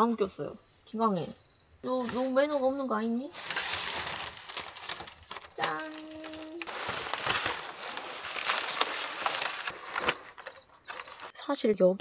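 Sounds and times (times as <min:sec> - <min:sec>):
foil balloons crinkling: 0:03.3 - 0:11.3.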